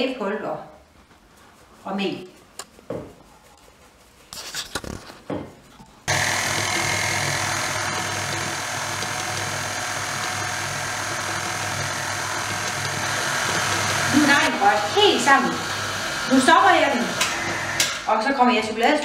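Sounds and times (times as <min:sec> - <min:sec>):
stand mixer motor running: 0:06.1 - 0:18.1.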